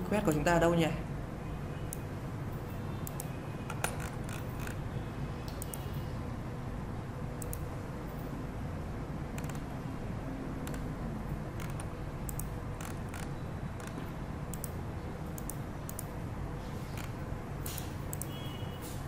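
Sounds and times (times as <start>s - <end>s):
computer mouse clicks: 3.0s - 4.8s, 5.4s - 6.0s, 7.4s - 8.3s, 9.4s - 9.7s, 10.6s - 10.9s, 11.6s - 16.2s, 16.9s - 18.4s.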